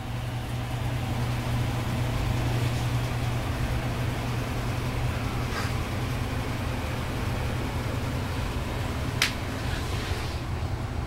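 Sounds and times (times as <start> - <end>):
low mechanical hum: 0.0 - 11.0
hiss: 9.5 - 10.6.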